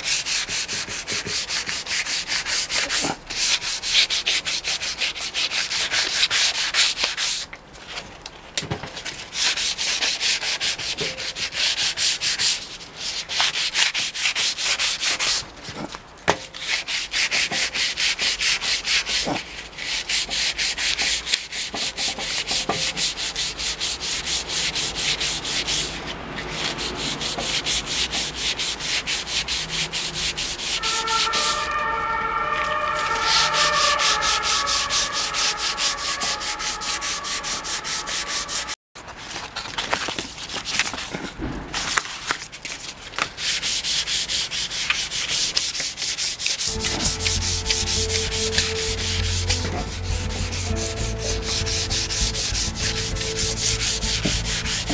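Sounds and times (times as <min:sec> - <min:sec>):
sandpaper rubbing on wood: 0:00.0 - 0:07.5, 0:09.2 - 0:15.6, 0:16.5 - 0:31.8, 0:32.5 - 0:38.8, 0:43.4 - 0:54.9
faint pitched tone: 0:30.8 - 0:38.8, 0:46.7 - 0:54.9.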